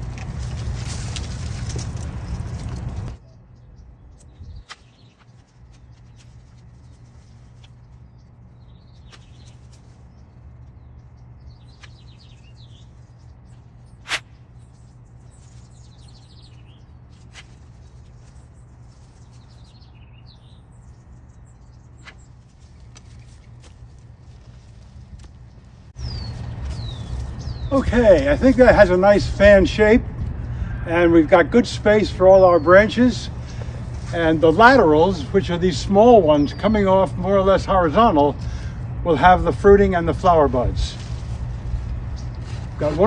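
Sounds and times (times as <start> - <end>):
steady low hum: 0.0 - 43.0
loppers snipping branches: 14.0 - 14.4.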